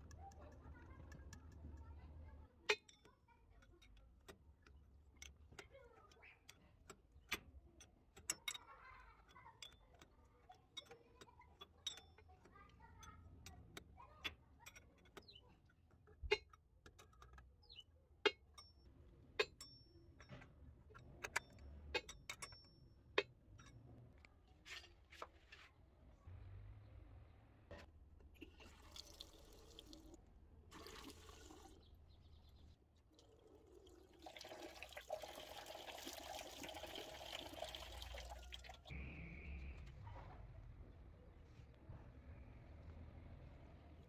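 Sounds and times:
spanner clinking on metal fittings: 0:02.7 - 0:24.0.

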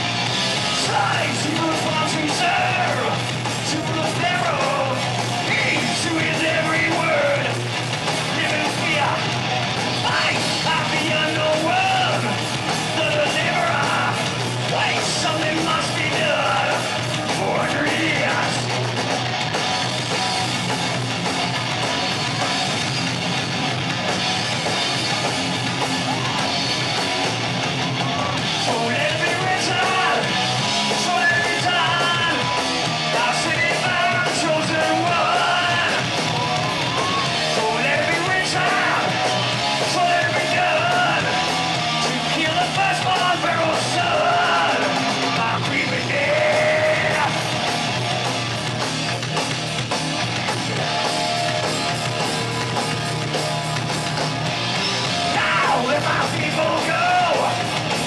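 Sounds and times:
bass guitar: 0:00.0 - 0:58.0
drums: 0:00.0 - 0:58.0
electric guitars: 0:00.0 - 0:58.0
singer's vocals: 0:00.6 - 0:09.3, 0:10.0 - 0:18.7, 0:28.2 - 0:47.6, 0:55.1 - 0:58.0.

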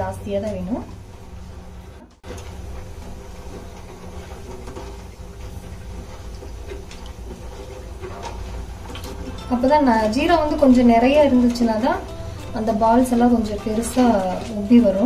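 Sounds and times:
gas burner running: 0:00.0 - 0:15.0.

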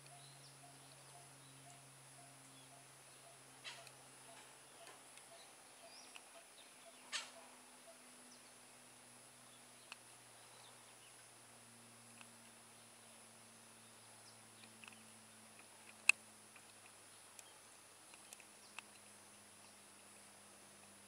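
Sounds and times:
parakeet calls: 0:00.0 - 0:08.4.

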